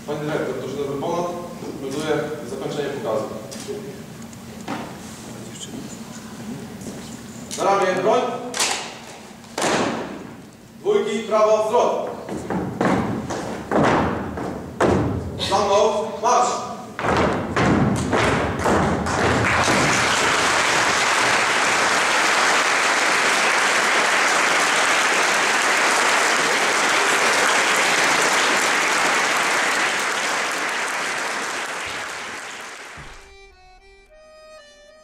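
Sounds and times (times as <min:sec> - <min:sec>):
boots stamping in marching: 0:12.1 - 0:15.3, 0:16.9 - 0:20.1, 0:33.0 - 0:33.3
crowd applauding: 0:18.6 - 0:33.1.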